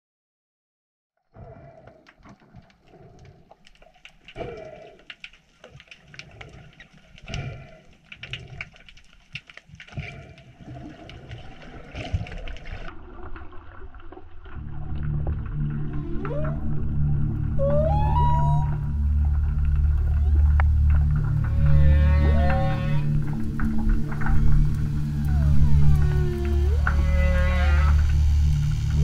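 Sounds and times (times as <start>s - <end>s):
water sloshing and bubbling: 1.3s - 29.0s.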